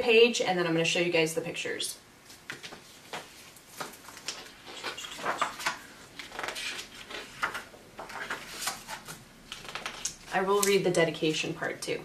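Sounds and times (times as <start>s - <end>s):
book pages turning: 2.3s - 10.8s.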